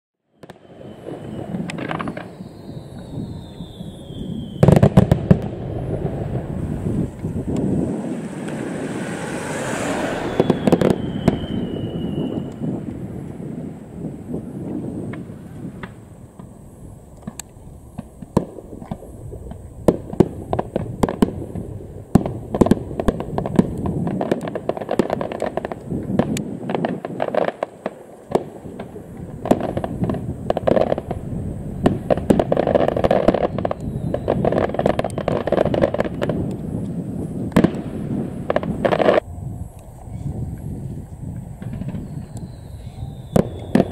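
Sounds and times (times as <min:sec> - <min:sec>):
rapid fireworks popping: 0:00.4 - 0:08.9, 0:10.2 - 0:39.2, 0:41.4 - 0:43.9
fireworks shells bursting: 0:00.4 - 0:12.7.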